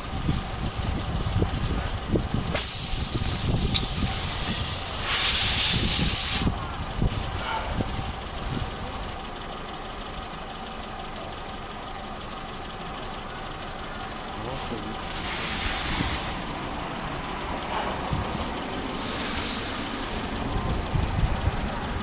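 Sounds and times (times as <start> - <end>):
air hissing out of tyre: 1.3 - 7.8, 15.0 - 16.6, 17.6 - 20.4.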